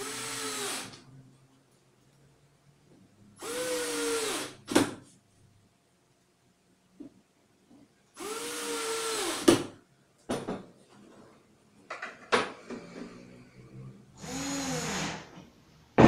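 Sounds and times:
cordless drill whirring: 0.0s - 1.0s, 3.4s - 4.6s, 8.2s - 9.5s, 14.2s - 15.3s.

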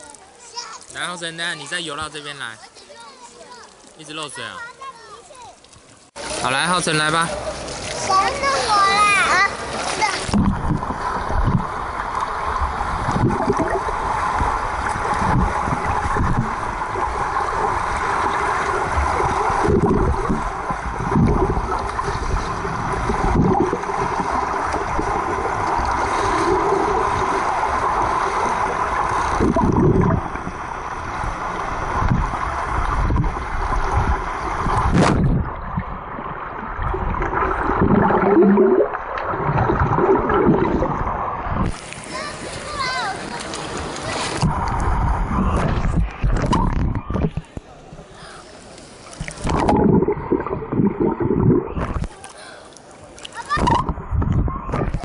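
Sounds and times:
muffled underwater water rush: 0.0s - 55.0s.

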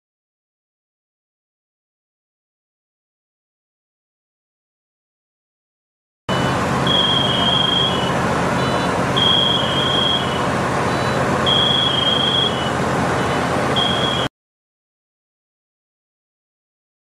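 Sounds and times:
fire truck engine humming: 6.3s - 14.3s
high-pitched electronic alarm: 6.3s - 14.3s.

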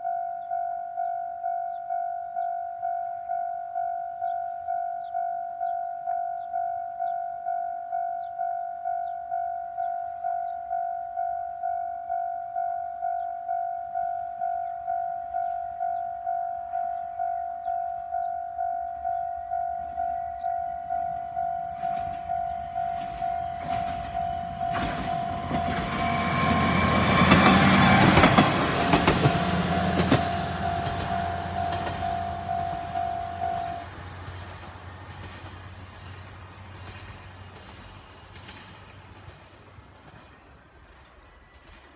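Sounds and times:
level crossing alarm chime: 0.0s - 33.9s
diesel railcar passing: 0.5s - 41.9s
wheels clacking over rail joints: 21.7s - 41.0s.

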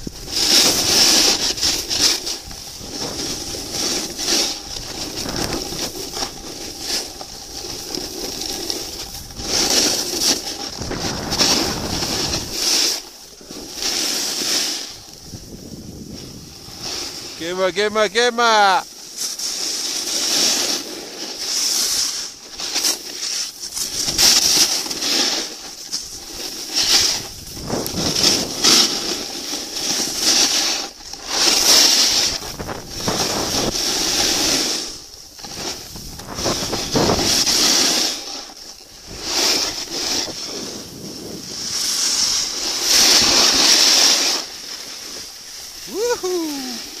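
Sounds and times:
sliding over snow hiss: 0.0s - 47.0s
wind buffeting microphone: 10.6s - 12.6s, 15.1s - 17.4s, 27.0s - 28.6s, 32.3s - 33.8s.

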